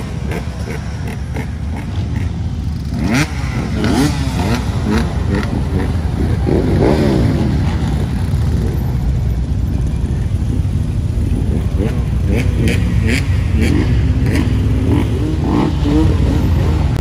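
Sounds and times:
idling engines rumble: 0.0 - 17.0
motorcycle engines revving and passing: 0.0 - 17.0.

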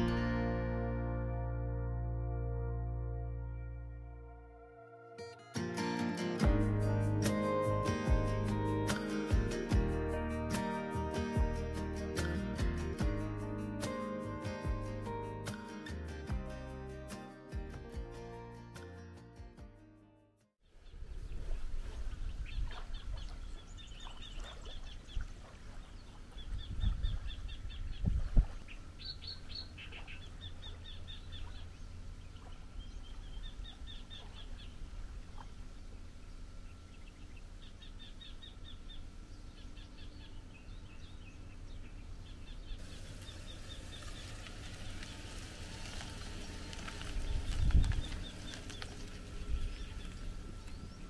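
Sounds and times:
wind rumble on microphone: 20.8 - 31.7, 42.9 - 51.0
small birds trilling: 20.8 - 35.5, 36.6 - 51.0.

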